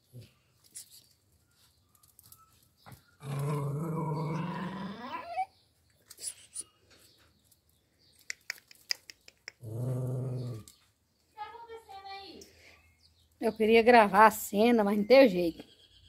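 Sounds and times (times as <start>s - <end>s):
pet growling: 3.2s - 5.5s, 9.6s - 10.7s.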